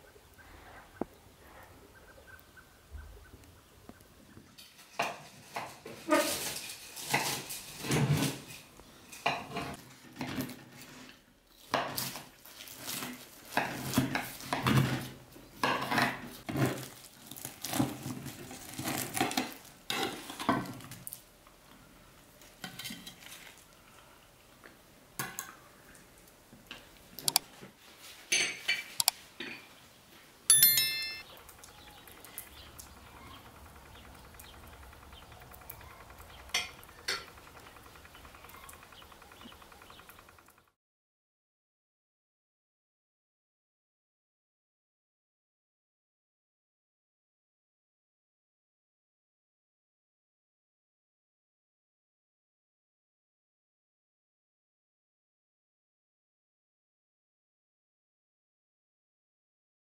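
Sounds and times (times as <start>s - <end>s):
cutlery and dishes clattering: 4.6s - 10.4s
sharp ringing clink: 30.5s - 31.2s
spoons knocking against bowls: 30.5s - 31.2s.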